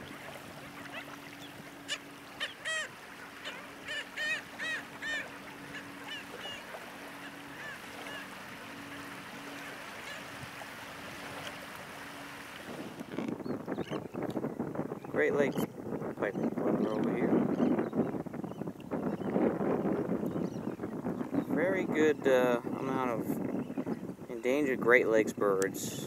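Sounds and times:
nasal honk-like bird calls: 0:00.0 - 0:12.4
faint wind noise: 0:00.0 - 0:26.0.

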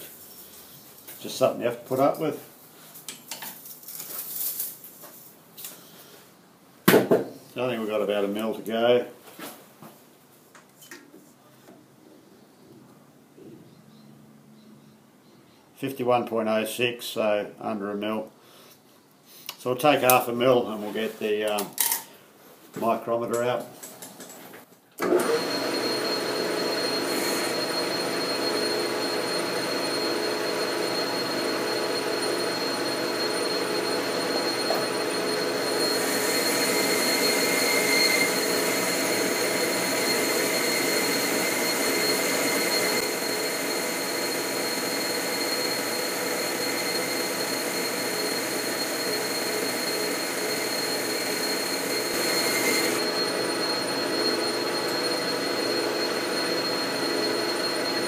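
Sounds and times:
metal lathe cutting: 0:25.0 - 0:58.0
faint high tool ringing: 0:25.4 - 0:58.0.

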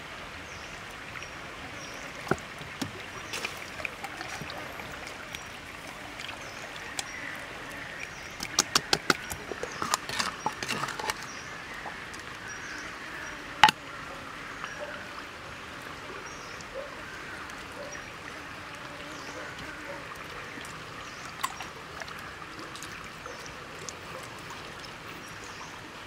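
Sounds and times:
steady outdoor hiss: 0:00.0 - 0:26.0.

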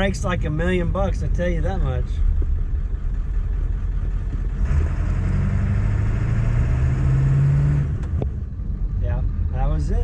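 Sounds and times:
diesel truck engine accelerating: 0:00.0 - 0:10.0
road noise: 0:00.0 - 0:10.0.

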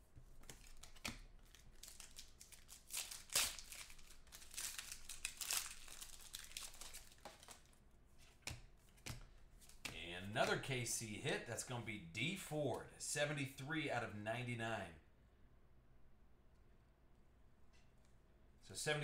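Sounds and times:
cards rustling: 0:00.2 - 0:10.6
foil wrapper crinkling and tearing: 0:00.6 - 0:07.7.

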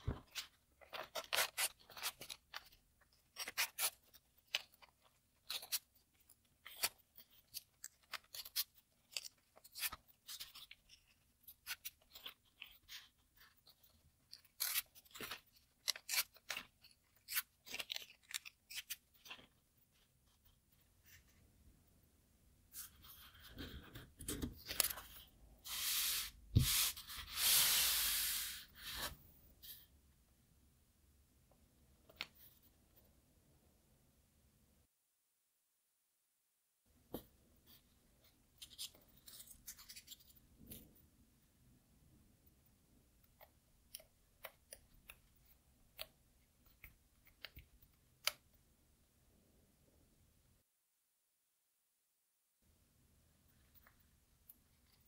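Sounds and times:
paper rustling and creasing: 0:00.0 - 0:21.4, 0:22.7 - 0:29.9
paper tearing along creases: 0:14.3 - 0:19.4, 0:25.6 - 0:29.1.

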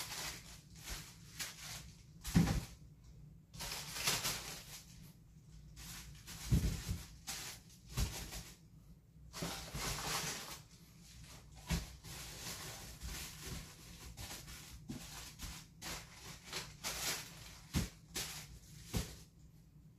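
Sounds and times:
plastic wrapping rustling: 0:00.0 - 0:02.9, 0:03.5 - 0:19.5.

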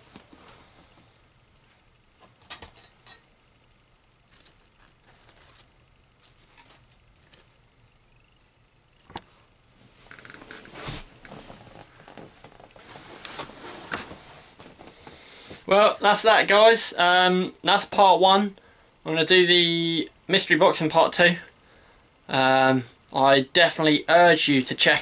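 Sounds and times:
paper packing crinkling: 0:04.3 - 0:07.6.

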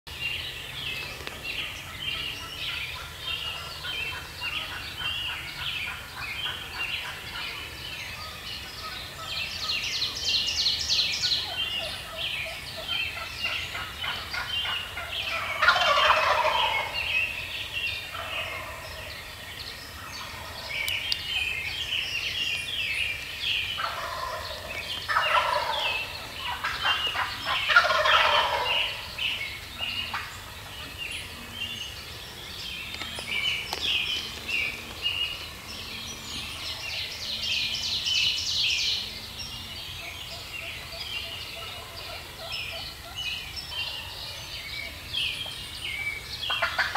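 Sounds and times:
songbirds chirping: 0:00.1 - 0:46.9
turkey gobbling: 0:12.8 - 0:17.0, 0:18.1 - 0:18.8, 0:23.8 - 0:29.2, 0:30.1 - 0:30.4, 0:46.5 - 0:46.9.

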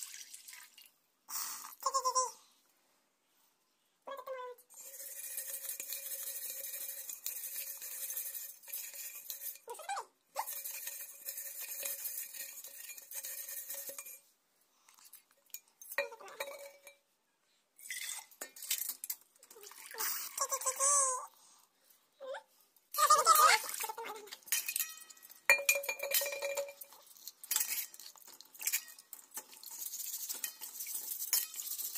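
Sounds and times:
liquid sloshing in metal bottle: 0:23.4 - 0:31.9.

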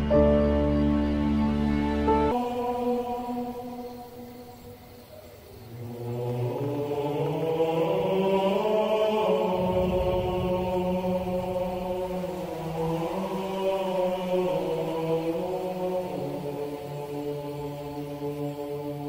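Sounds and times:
slow chant-like music: 0:00.0 - 0:19.0.

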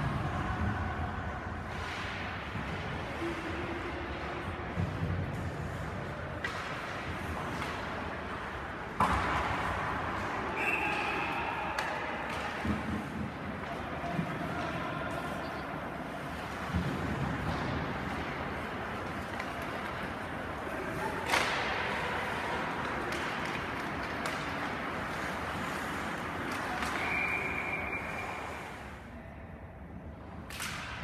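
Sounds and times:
skates on ice: 0:00.0 - 0:29.1
stick hitting puck: 0:06.4 - 0:27.7.

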